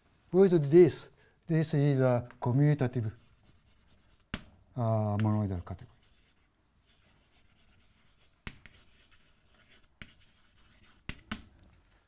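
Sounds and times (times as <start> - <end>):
chalk scratching on blackboard: 2.4 - 4.5, 5.2 - 11.4
chalk tapping on board: 3.1 - 4.5, 5.1 - 11.5.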